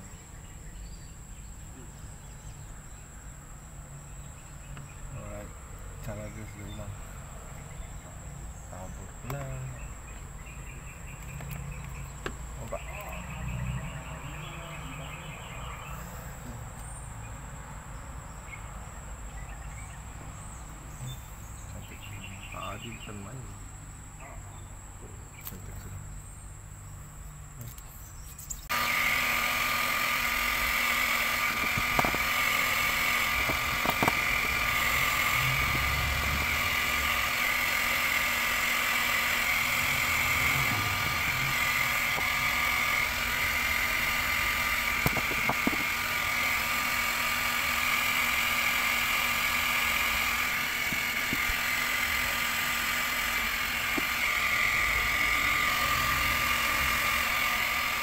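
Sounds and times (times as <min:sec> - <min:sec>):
hot air gun blowing with whine: 0:28.7 - 0:58.0.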